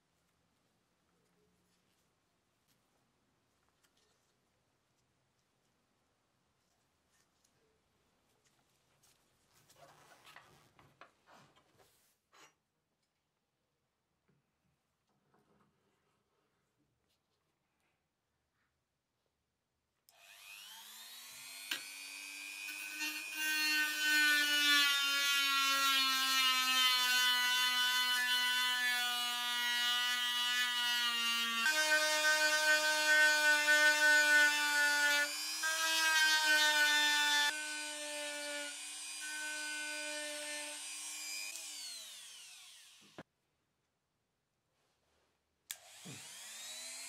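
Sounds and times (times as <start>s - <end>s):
rotary tool whining: 45.8s - 47.0s.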